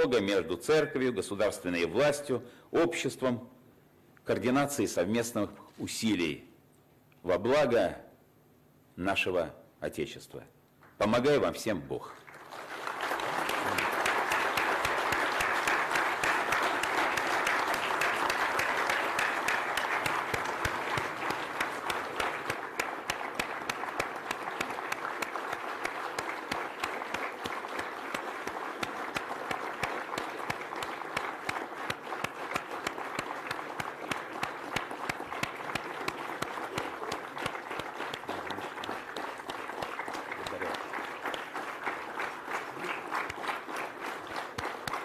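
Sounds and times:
large audience applauding: 12.2 - 45.0.

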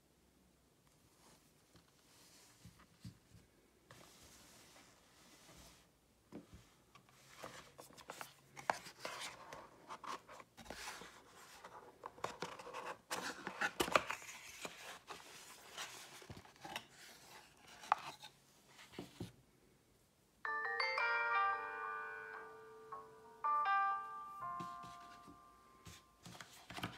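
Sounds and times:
music with piano notes: 20.5 - 26.2.

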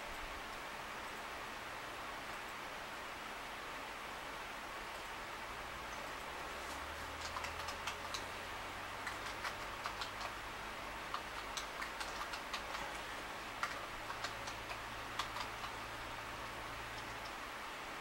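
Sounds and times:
low hum and hiss: 0.0 - 18.0
computer keyboard clicking: 6.6 - 8.4, 9.0 - 10.4, 11.0 - 17.4.

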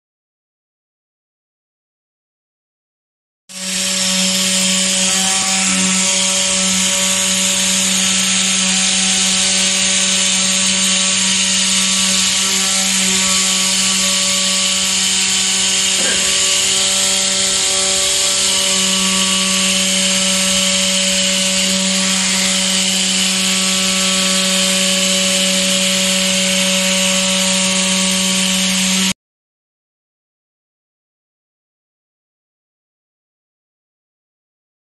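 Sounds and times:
router spindle milling metal: 3.5 - 29.1.

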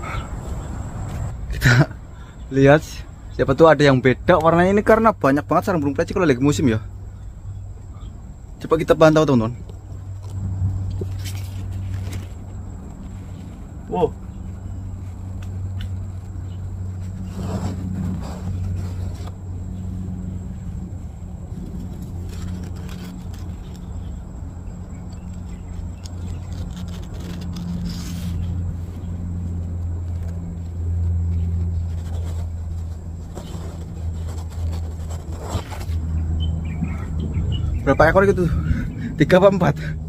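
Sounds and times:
vehicle engine humming: 0.0 - 40.0
rustling handling noises: 9.4 - 37.0.

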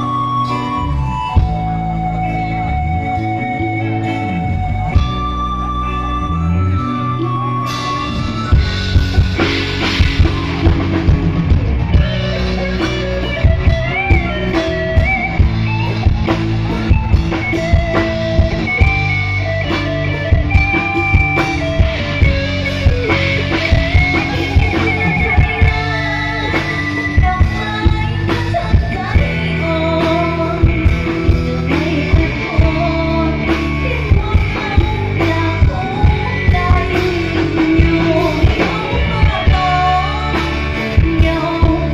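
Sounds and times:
electric guitar: 0.0 - 41.9
drum-kit beat: 7.7 - 41.9
person singing: 11.9 - 41.9.

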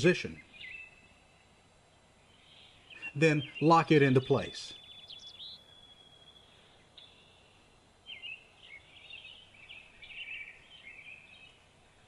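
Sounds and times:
birdsong: 0.0 - 12.0.

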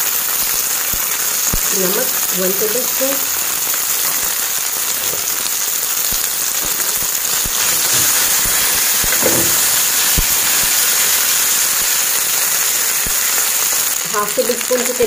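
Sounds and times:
chicken sizzling in hot oil: 0.0 - 15.0
spatula scraping a pan: 6.8 - 9.9.

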